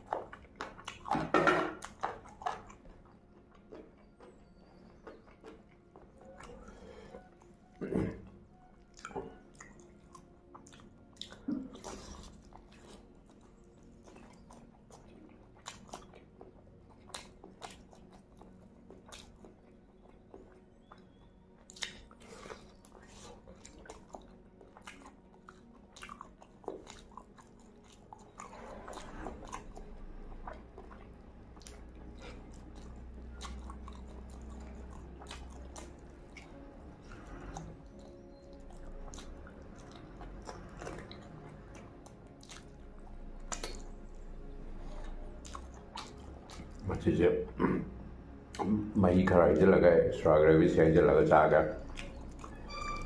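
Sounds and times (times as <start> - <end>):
person chewing meat: 0.0 - 48.8, 51.7 - 53.0
wet mouth clicks and smacks: 17.0 - 28.5, 37.4 - 44.2, 45.4 - 46.8, 51.8 - 52.6.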